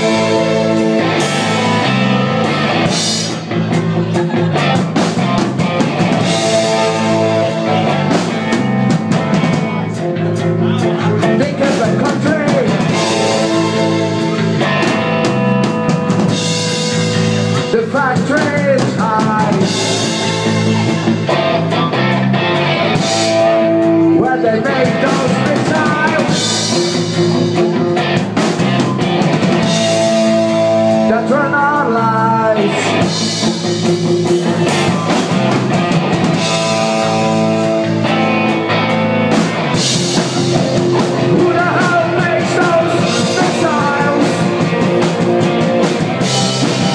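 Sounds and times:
rock band playing: 0.0s - 46.9s
man singing: 9.5s - 14.6s, 17.4s - 21.1s, 23.4s - 26.9s, 30.3s - 33.5s, 36.3s - 38.1s, 40.4s - 45.6s.

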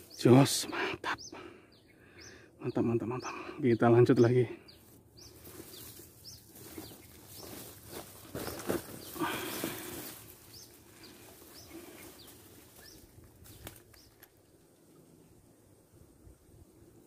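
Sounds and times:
plastic bag and grass rustling: 4.8s - 14.2s.

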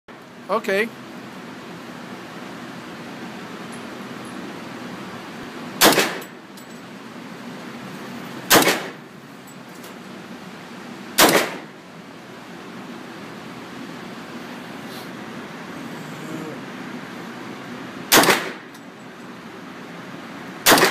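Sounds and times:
submachine gun single shots: 5.8s - 6.4s, 8.5s - 9.0s, 11.2s - 11.7s, 18.1s - 18.7s, 20.6s - 20.9s.

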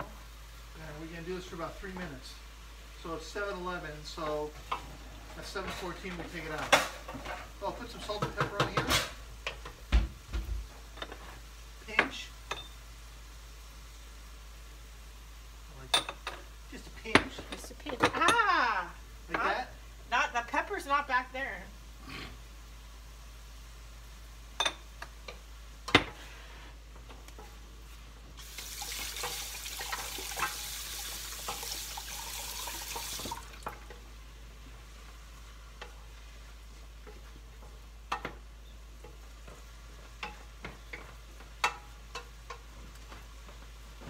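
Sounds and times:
water running from a tap: 28.4s - 33.8s.

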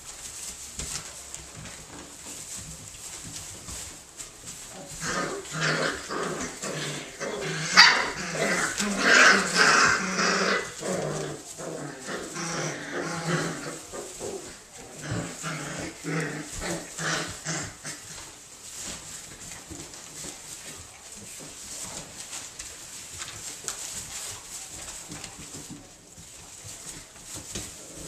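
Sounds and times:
puppies growling yipping and barking: 4.5s - 20.6s.

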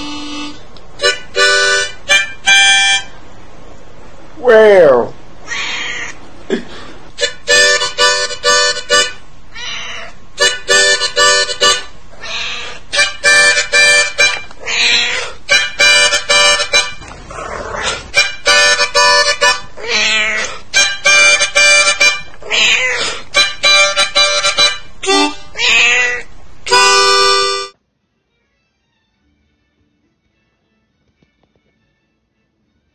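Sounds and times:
harmonica chord phrases: 0.0s - 3.2s, 6.8s - 9.2s, 10.4s - 12.0s, 12.6s - 14.5s, 15.2s - 17.0s, 17.8s - 22.4s, 23.0s - 27.8s
cat yowling: 4.4s - 6.2s, 9.5s - 10.2s, 12.2s - 12.8s, 14.6s - 15.4s, 19.8s - 20.6s, 22.4s - 23.2s, 25.5s - 26.3s.

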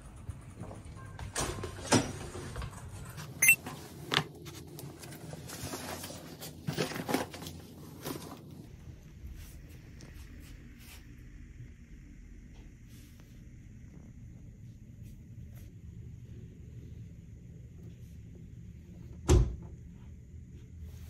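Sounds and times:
handling knocks and rustles: 1.4s - 8.6s.

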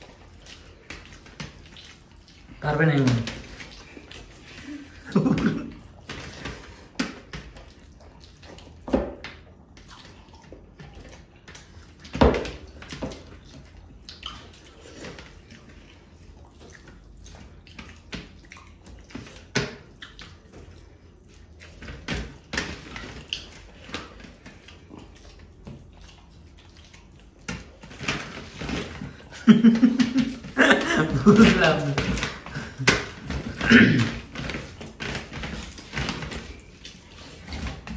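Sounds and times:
wet squelching of food mixed by hand: 0.0s - 37.9s.

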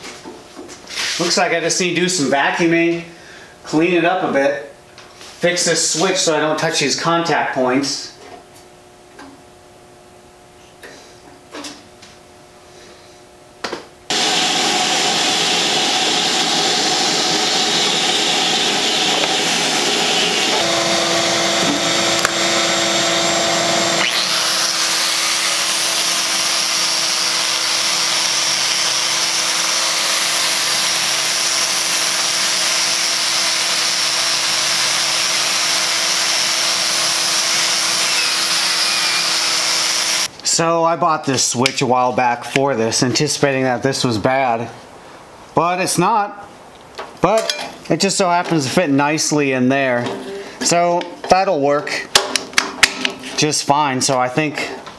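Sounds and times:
shop vacuum running: 10.6s - 40.4s
steady whine: 12.5s - 40.7s
wire brush grinder scrubbing metal: 14.1s - 40.3s.

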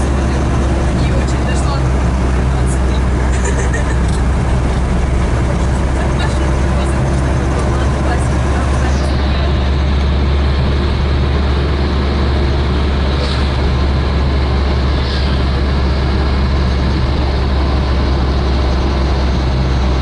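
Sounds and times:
engine drone: 0.0s - 20.0s
road and tyre noise: 0.0s - 20.0s
brief high hisses: 15.0s - 15.4s.

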